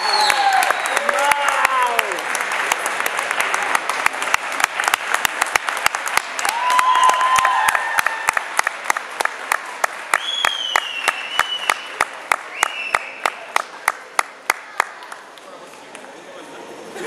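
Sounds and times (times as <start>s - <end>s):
audience applauding: 0.0s - 16.1s
loud rhythmic claps: 0.0s - 16.1s
crowd high cries: 6.4s - 8.4s.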